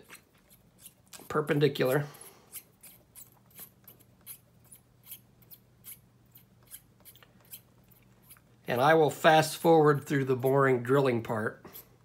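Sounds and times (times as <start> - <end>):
hand drill scratching into resin: 0.0 - 8.5.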